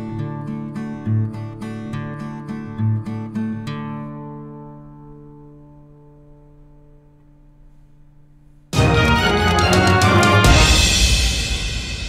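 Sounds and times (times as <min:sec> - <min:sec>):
drum hits: 0:08.8 - 0:12.0
loud background music: 0:08.8 - 0:12.0
crash with heavy bass: 0:10.0 - 0:12.0.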